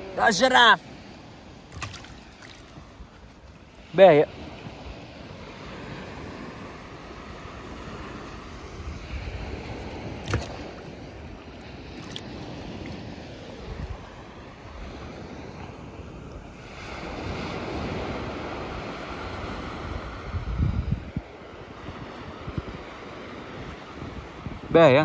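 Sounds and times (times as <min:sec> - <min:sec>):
wind buffeting microphone: 0:05.8 - 0:15.3, 0:17.1 - 0:25.0.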